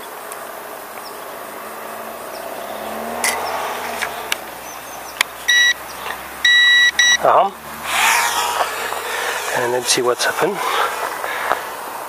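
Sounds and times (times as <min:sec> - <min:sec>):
high electronic beep: 0:05.5 - 0:05.8, 0:06.4 - 0:07.3.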